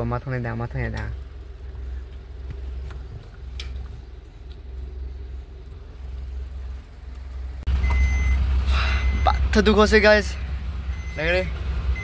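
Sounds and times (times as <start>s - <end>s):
vehicle engine rumble: 0.0s - 12.0s.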